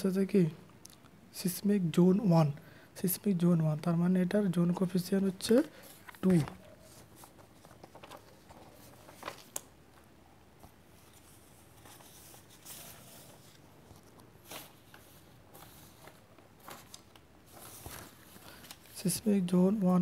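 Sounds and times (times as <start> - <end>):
paper rustling: 5.4 - 19.8.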